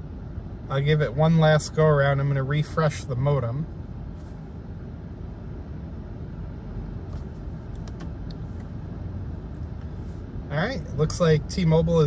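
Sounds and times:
low rumble in car cabin: 0.0 - 12.0.

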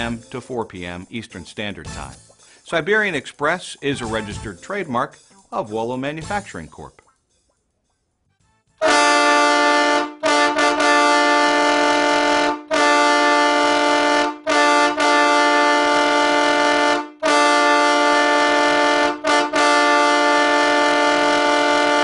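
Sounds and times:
air horn blasts: 8.8 - 22.0.

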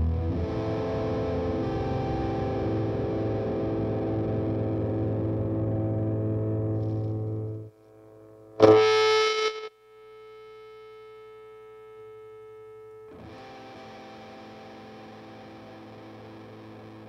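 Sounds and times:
fuzzed electric guitar: 0.0 - 17.0.

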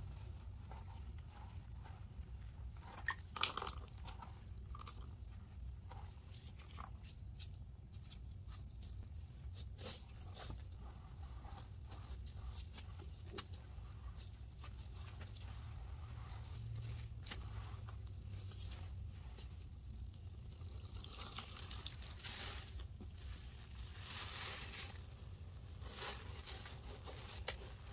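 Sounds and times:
low steady hum: 0.0 - 27.9
liquid sloshing in a bowl: 0.2 - 7.0.

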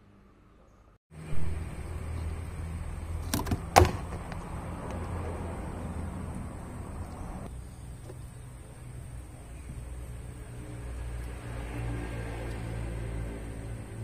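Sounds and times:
low mechanical hum: 0.0 - 14.0
sharp knocks: 3.3 - 4.3.

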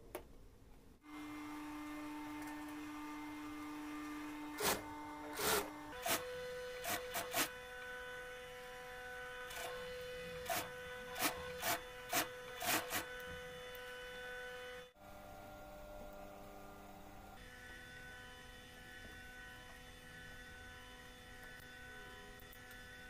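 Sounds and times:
sewing machine stitching: 4.6 - 7.5, 9.5 - 13.1.

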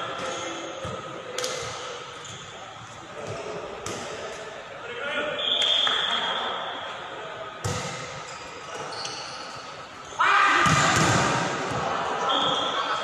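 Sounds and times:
players shouting: 10.0 - 13.0.

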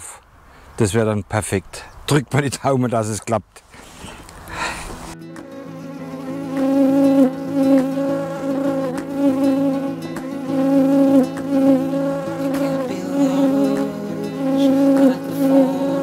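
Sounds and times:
insect buzzing: 5.2 - 16.0.

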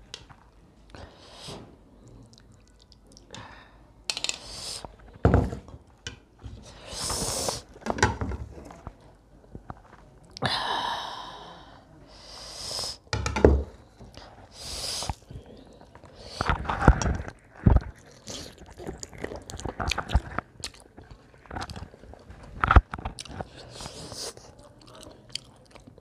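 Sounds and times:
chewing: 2.0 - 3.4, 15.0 - 26.0
loud breaths through the nose: 6.6 - 7.7, 11.1 - 13.0, 14.4 - 15.2.

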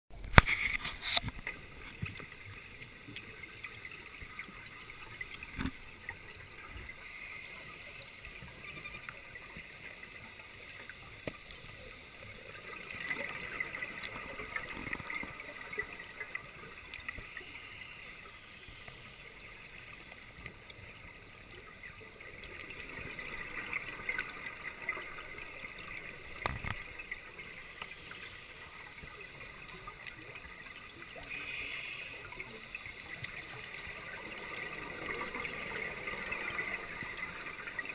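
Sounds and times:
underwater bubbles gurgling: 0.1 - 37.9.

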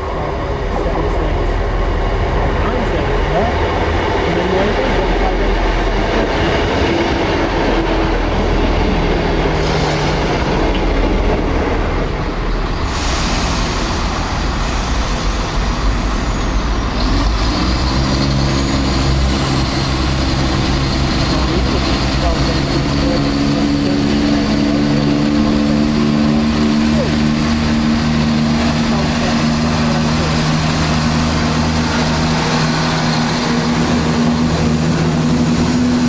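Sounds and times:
diesel train engine: 0.0 - 36.0.

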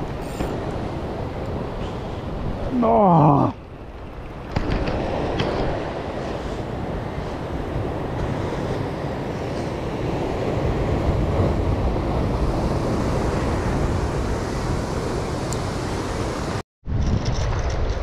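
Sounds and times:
wind buffeting microphone: 0.0 - 18.0
surf breaking over rocks: 4.2 - 16.5.

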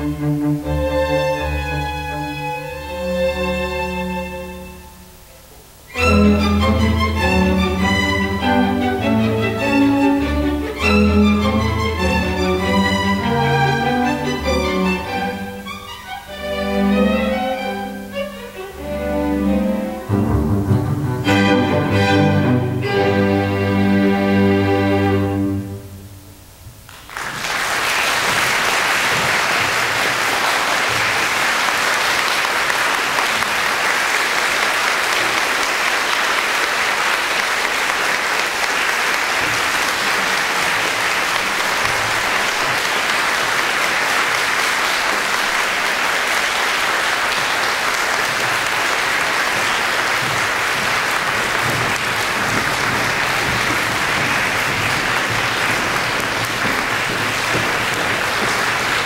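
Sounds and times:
audience applauding: 26.8 - 59.0.

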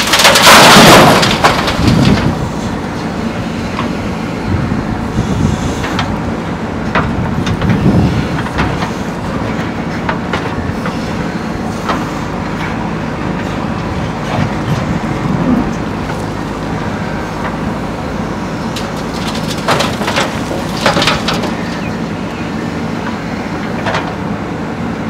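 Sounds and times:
soil and stones rattling into truck bed: 0.0 - 2.6, 18.7 - 22.0
diesel engine running under load: 0.0 - 25.0.

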